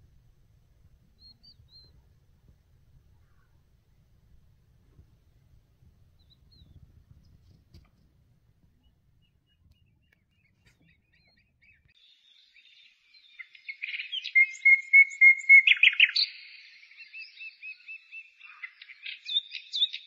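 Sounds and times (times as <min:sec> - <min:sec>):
bird twittering song: 0:01.1 - 0:02.2, 0:06.0 - 0:20.0.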